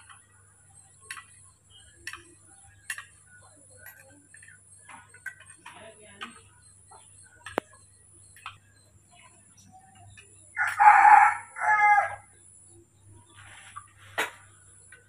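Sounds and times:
rooster crowing: 0:10.6 - 0:12.3.

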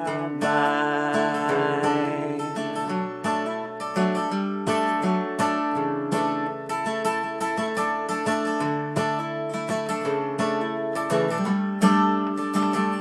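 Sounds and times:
acoustic guitar strumming chords: 0:00.0 - 0:13.0.

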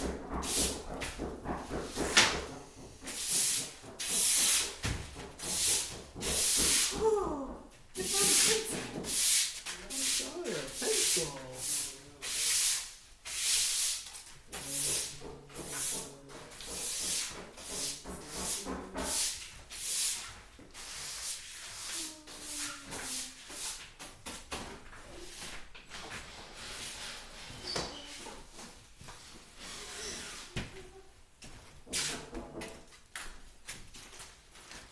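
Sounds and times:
broom sweeping paper-covered floor: 0:00.1 - 0:01.0, 0:01.7 - 0:07.1, 0:07.9 - 0:31.0.

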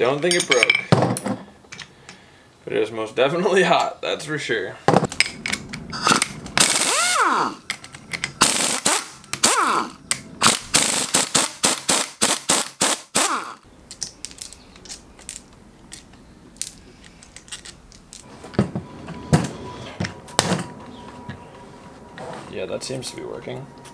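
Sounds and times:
metal parts clicking: 0:05.1 - 0:18.3.

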